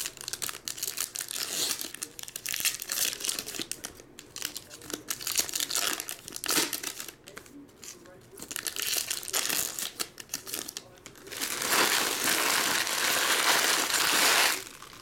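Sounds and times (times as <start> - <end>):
foil wrappers crinkling and tearing: 0.0 - 15.0.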